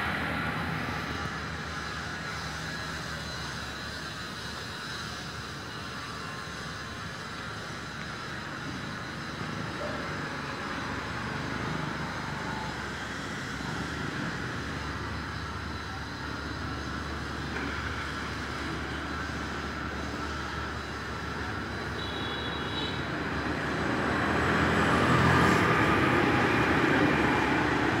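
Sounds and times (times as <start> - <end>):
street traffic: 0.0 - 28.0
motorbike passing close: 23.4 - 28.0.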